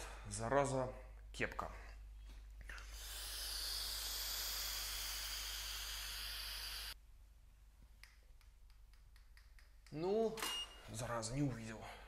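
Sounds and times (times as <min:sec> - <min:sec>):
breathy hiss of vaping: 0:02.6 - 0:07.0.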